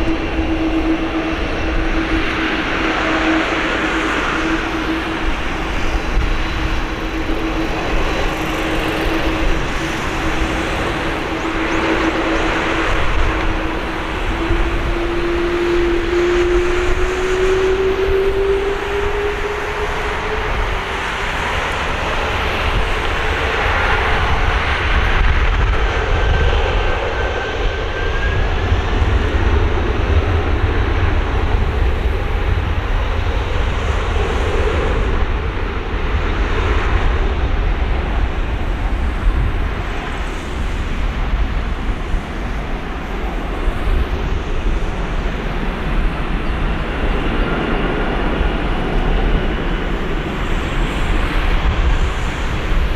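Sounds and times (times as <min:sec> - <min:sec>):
jet engine whine: 0:00.0 - 0:52.9
jet engines roaring at takeoff: 0:00.0 - 0:52.9.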